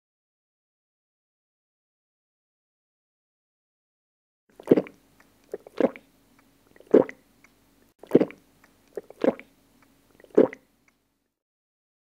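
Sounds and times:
person gulping water: 4.5s - 7.2s, 8.0s - 9.5s, 10.1s - 10.7s
wet mouth clicks: 4.6s - 11.0s.

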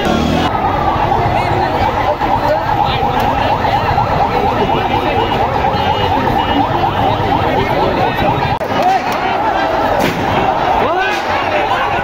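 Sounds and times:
crowd noise: 0.0s - 12.0s
ambulance siren yelping: 0.1s - 12.0s.

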